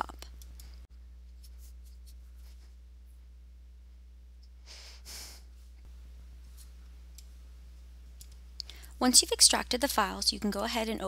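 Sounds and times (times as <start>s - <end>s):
low steady hum: 0.0s - 11.0s
soft breath: 4.6s - 5.6s.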